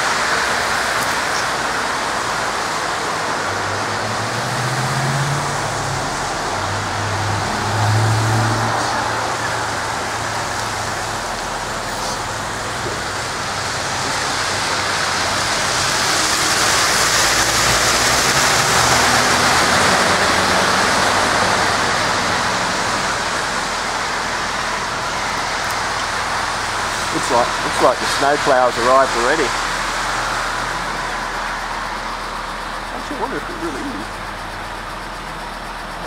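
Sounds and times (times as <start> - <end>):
low engine hum: 0.0 - 36.0
truck passing: 0.0 - 36.0
tyres hissing on slush: 7.9 - 31.4, 32.9 - 34.2.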